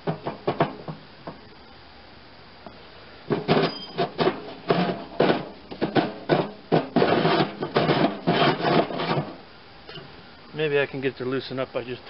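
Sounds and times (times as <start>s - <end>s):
metal chute grinding scrapes: 3.3s - 9.4s.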